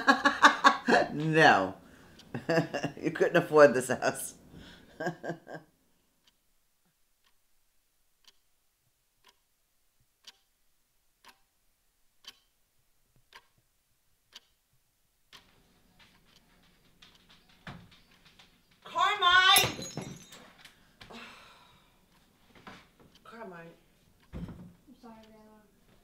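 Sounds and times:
clock ticking: 0:00.0 - 0:03.6, 0:05.0 - 0:06.5, 0:07.2 - 0:07.5, 0:08.2 - 0:10.6, 0:11.2 - 0:11.6, 0:12.2 - 0:19.6, 0:22.0 - 0:26.0
faint steady background noise: 0:00.0 - 0:26.0.

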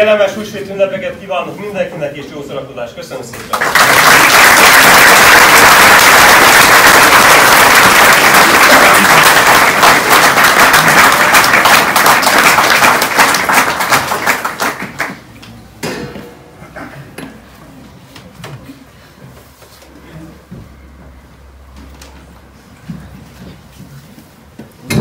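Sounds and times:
audience applauding: 0:03.5 - 0:15.2.

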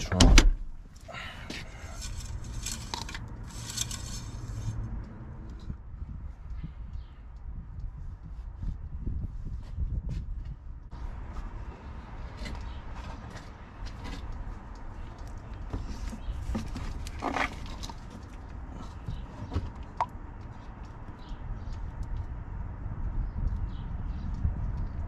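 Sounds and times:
low outdoor rumble: 0:00.0 - 0:25.0
plastic bottle and funnel handling: 0:01.8 - 0:04.4.

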